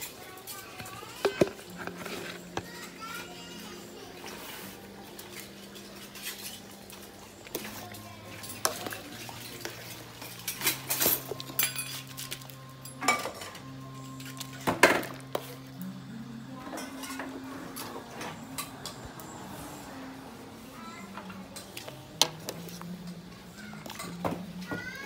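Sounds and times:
metal spoon scraping cooking pot: 0:01.2 - 0:02.7.

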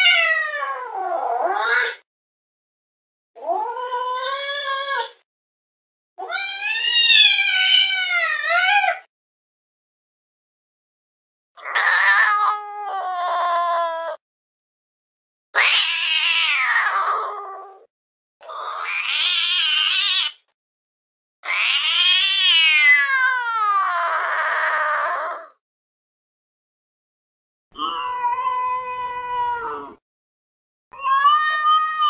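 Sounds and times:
cat yowling: 0:00.0 - 0:02.0, 0:06.2 - 0:09.1, 0:11.6 - 0:14.2, 0:15.6 - 0:17.9, 0:18.5 - 0:20.4, 0:21.4 - 0:25.6, 0:27.8 - 0:30.0, 0:30.9 - 0:32.0.

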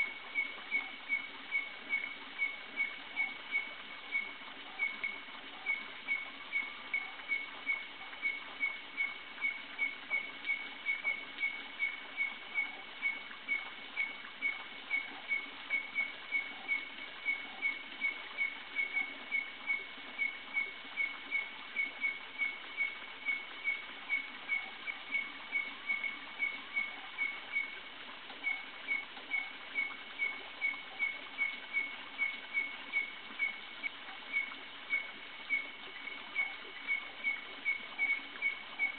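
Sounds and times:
background night sounds: 0:00.0 - 0:38.9.

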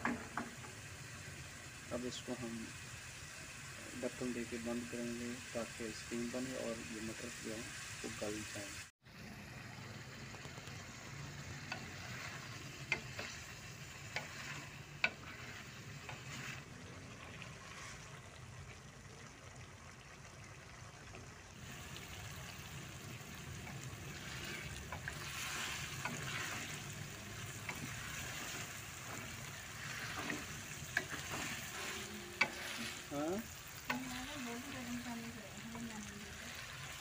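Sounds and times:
low sizzle: 0:00.0 - 0:37.0
spatula stirring food in pot: 0:10.3 - 0:18.8, 0:21.6 - 0:37.0.

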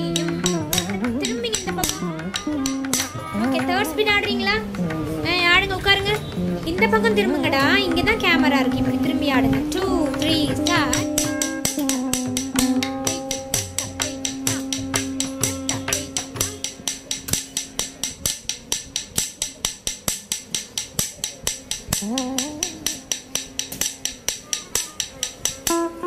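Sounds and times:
small metal cymbals struck: 0:00.0 - 0:26.0
held note: 0:06.2 - 0:18.2, 0:22.0 - 0:26.0.

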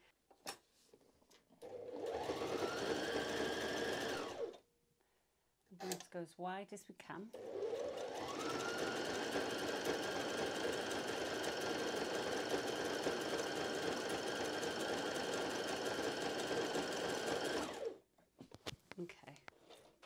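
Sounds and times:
sewing machine running: 0:01.6 - 0:04.6, 0:07.3 - 0:18.0.

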